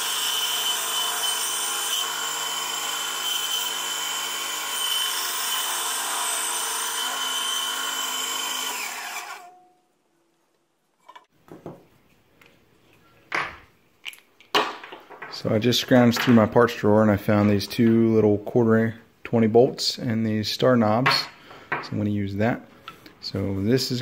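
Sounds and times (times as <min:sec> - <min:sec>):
bandsaw cutting plywood: 0:00.0 - 0:09.6.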